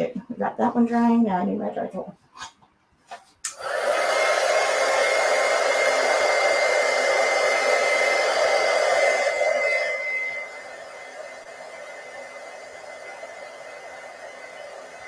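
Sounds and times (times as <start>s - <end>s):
blow dryer running: 3.5s - 15.0s.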